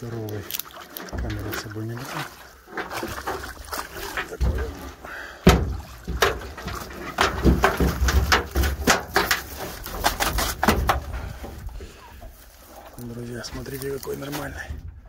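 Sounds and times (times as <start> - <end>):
knocks and thumps against boat hull: 2.8 - 11.7.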